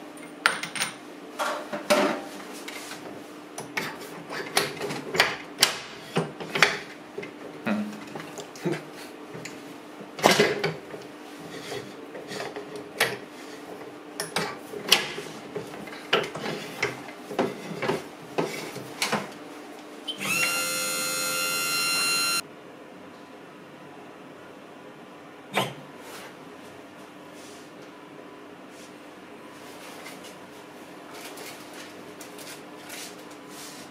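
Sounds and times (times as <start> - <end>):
press motor whine: 20.1 - 22.4.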